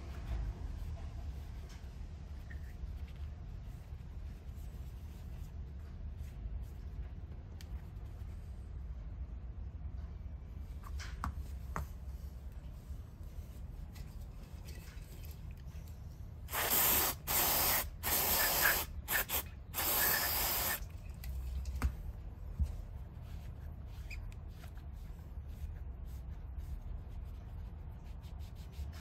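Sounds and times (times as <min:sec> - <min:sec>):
compressed air hissing blasts: 0:16.5 - 0:20.8.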